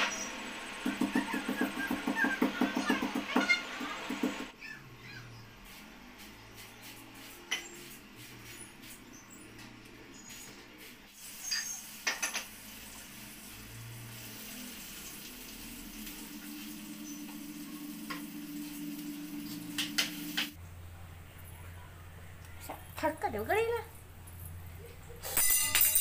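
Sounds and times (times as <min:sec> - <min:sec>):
gas stove hiss: 0:11.1 - 0:20.6.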